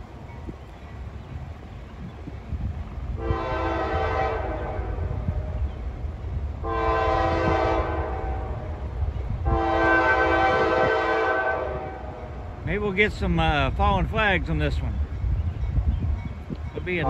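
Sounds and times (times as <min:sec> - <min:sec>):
train rumble: 0:00.0 - 0:17.0
locomotive air horn blasts: 0:03.2 - 0:05.5, 0:06.6 - 0:12.4.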